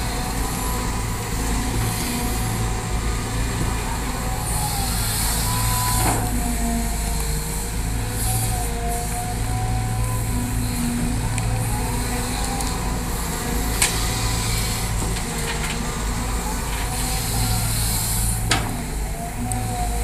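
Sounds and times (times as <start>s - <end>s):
excavator diesel engine running: 0.0s - 20.0s
hiss: 16.9s - 18.8s.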